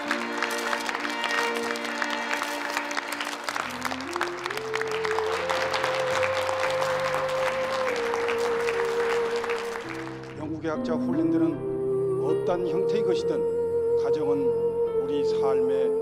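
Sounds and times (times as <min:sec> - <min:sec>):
crowd applause: 0:00.0 - 0:10.4
slow string ensemble music: 0:00.0 - 0:16.0.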